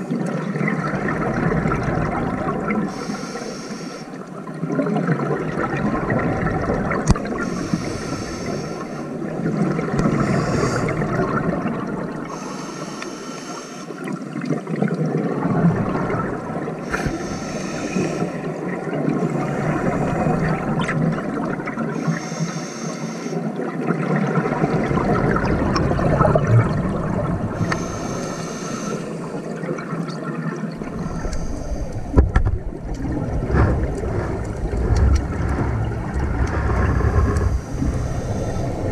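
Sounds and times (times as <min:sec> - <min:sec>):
exhaled bubbles gushing underwater: 0:00.0 - 0:12.6, 0:14.0 - 0:22.4, 0:23.4 - 0:38.9
scuba regulator inhale hiss: 0:02.9 - 0:04.2, 0:07.4 - 0:09.1, 0:10.2 - 0:11.0, 0:12.3 - 0:14.0, 0:16.8 - 0:18.4, 0:22.0 - 0:23.4, 0:27.6 - 0:29.4, 0:31.0 - 0:32.2, 0:37.6 - 0:38.9.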